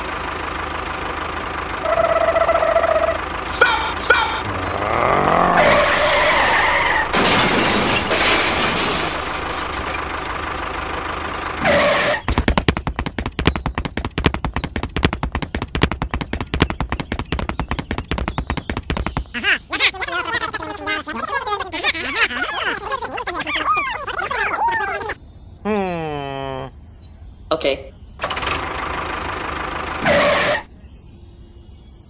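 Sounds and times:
fast uneven rattle of knocks: 12.3s - 19.4s.

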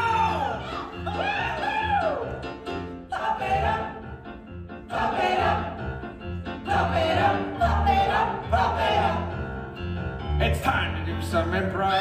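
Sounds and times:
keyboard accompaniment: 0.0s - 12.0s
group of people singing: 3.0s - 4.2s, 4.8s - 9.6s.

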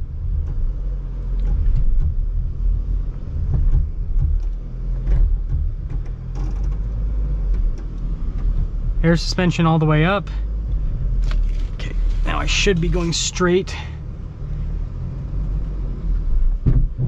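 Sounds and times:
vehicle drivetrain rumble: 0.0s - 17.0s
knocks: 3.4s - 6.9s, 16.6s - 17.0s.

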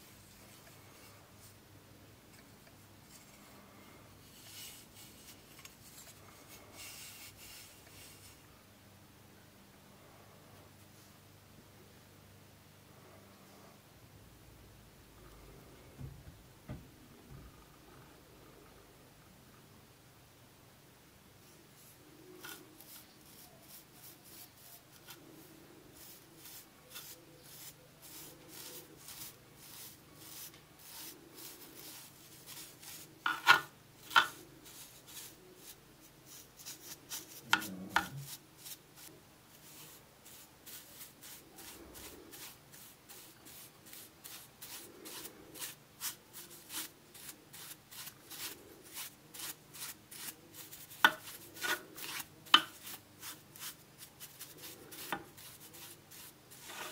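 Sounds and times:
bristle brush scrubbing metal: 21.8s - 33.4s, 34.0s - 56.9s.

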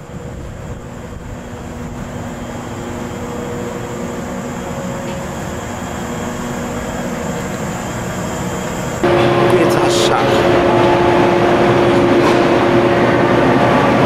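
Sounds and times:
electric train humming: 0.0s - 14.0s.

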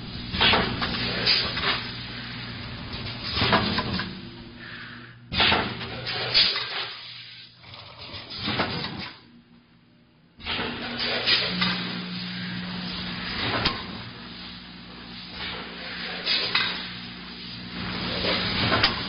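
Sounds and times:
packaging machine hum: 0.0s - 6.6s, 10.4s - 19.0s.

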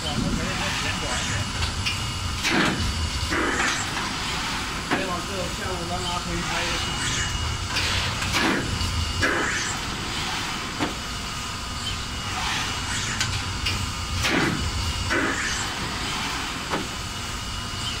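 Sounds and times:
machine hum: 0.0s - 18.0s.

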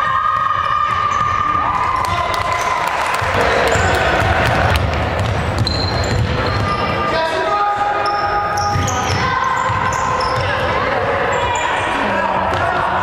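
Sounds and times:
sneakers squeaking: 0.0s - 13.0s
basketball bouncing on hardwood floor: 3.2s - 6.8s, 8.7s - 10.7s
voices: 6.5s - 13.0s.

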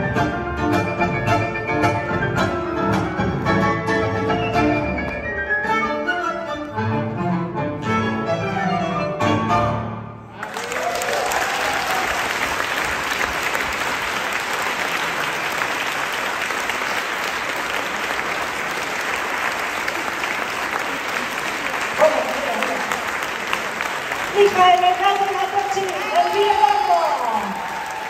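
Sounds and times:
tango ensemble strings and piano: 0.0s - 10.3s
audience applause: 10.3s - 28.0s.

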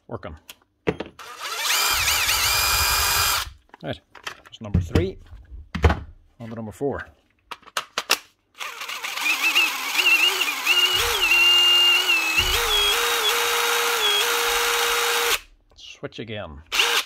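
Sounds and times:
impact driver motor whining: 1.2s - 3.6s, 8.6s - 15.4s, 16.8s - 17.0s.

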